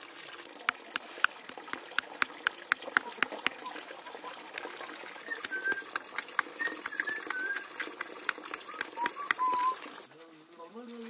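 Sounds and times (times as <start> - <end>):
metal tool tapping on stone: 0.7 - 3.6
whistled bird calls: 5.2 - 7.8, 8.7 - 9.8.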